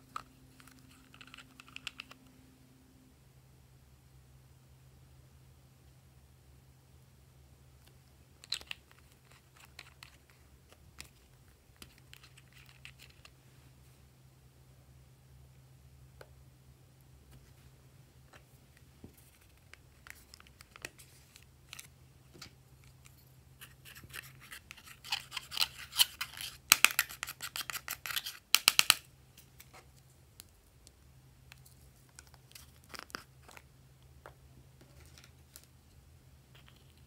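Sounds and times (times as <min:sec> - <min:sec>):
brush scraping eyeshadow: 0:22.8 - 0:28.5.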